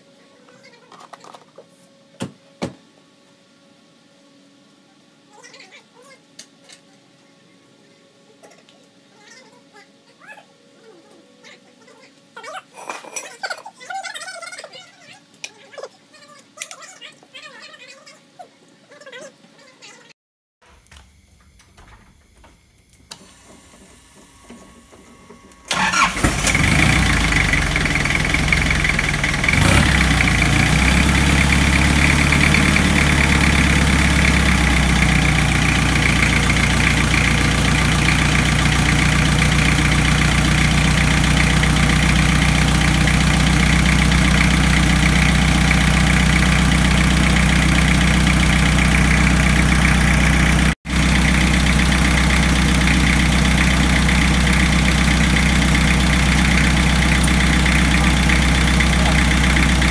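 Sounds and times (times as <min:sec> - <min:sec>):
diesel engine starting and idling: 0:23.3 - 0:59.9.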